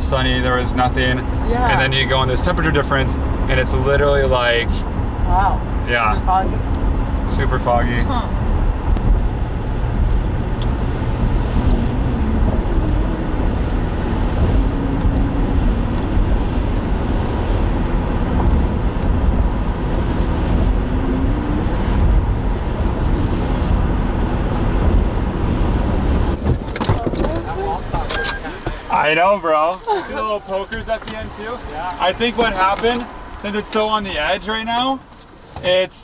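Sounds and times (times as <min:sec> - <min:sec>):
road and tyre noise: 0:00.0 - 0:36.0.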